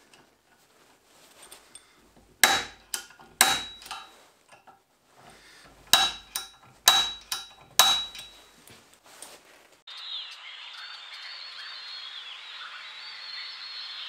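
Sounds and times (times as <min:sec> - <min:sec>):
center punch striking steel: 0:02.4 - 0:04.2, 0:05.6 - 0:08.5.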